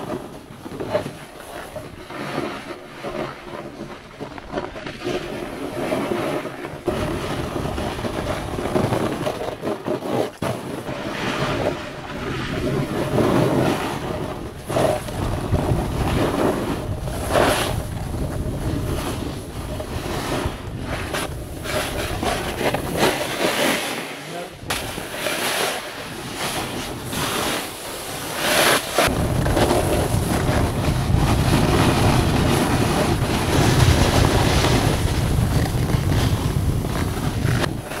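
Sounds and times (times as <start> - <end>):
ski edges scraping snow: 0.0 - 38.0
wind rushing over microphone: 10.4 - 38.0.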